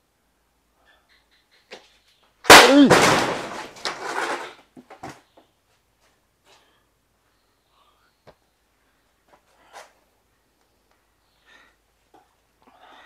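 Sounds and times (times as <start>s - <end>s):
smaller hit: 2.5s - 3.7s
loud bang: 2.5s - 3.8s
noisy crash: 2.5s - 4.4s.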